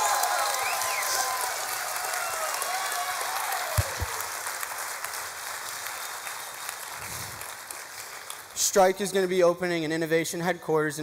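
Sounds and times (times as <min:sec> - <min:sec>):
whoops: 0:00.0 - 0:04.4
audience applauding and cheering: 0:00.0 - 0:08.7.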